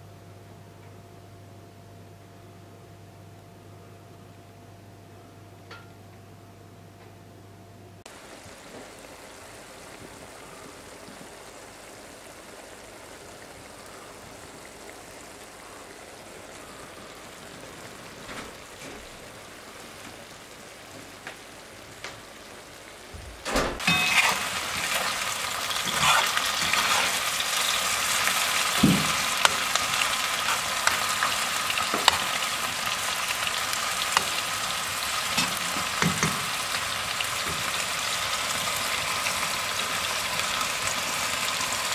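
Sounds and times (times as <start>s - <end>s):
mushrooms sizzling in a pan: 8.1s - 23.2s, 23.8s - 41.9s.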